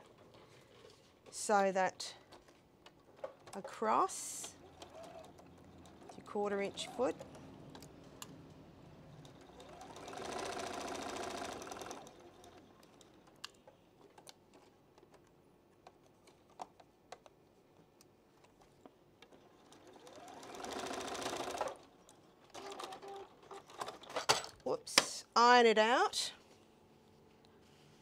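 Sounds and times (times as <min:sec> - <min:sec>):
sewing machine stitching: 0:04.2 - 0:08.5, 0:09.1 - 0:13.2, 0:19.3 - 0:21.9, 0:22.5 - 0:24.2.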